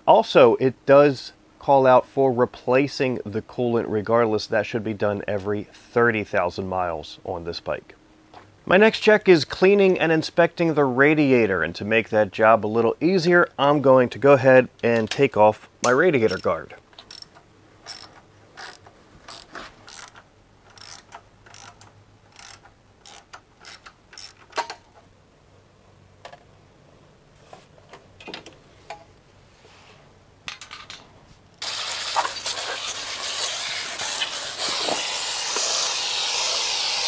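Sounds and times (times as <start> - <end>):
ratchet clicking: 16.3 - 24.8, 32.8 - 37.0
hose spraying water: 31.6 - 37.0.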